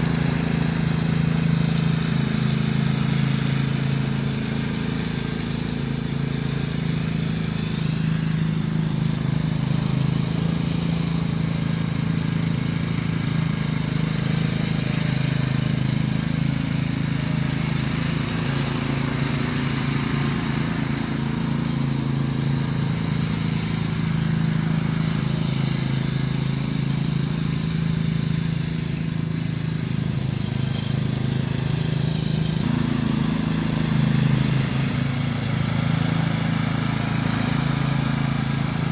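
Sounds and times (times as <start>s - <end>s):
riding mower engine running: 0.0s - 38.9s.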